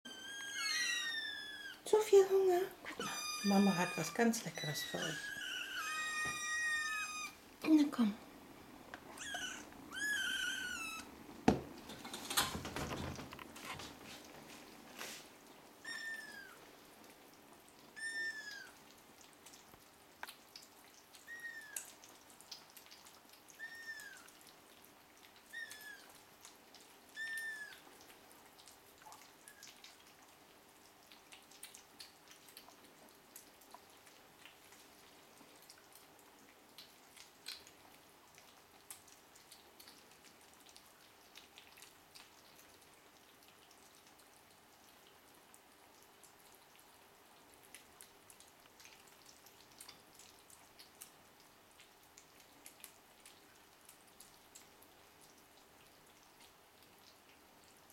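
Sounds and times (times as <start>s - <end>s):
kitten mewing: 0.1s - 1.8s, 2.8s - 7.4s, 9.0s - 11.1s
wet clicking of eating: 15.4s - 57.9s.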